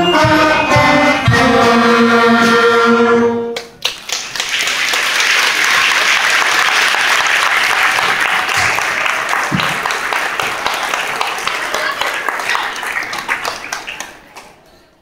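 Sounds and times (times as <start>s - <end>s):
audience applauding: 3.6s - 14.6s.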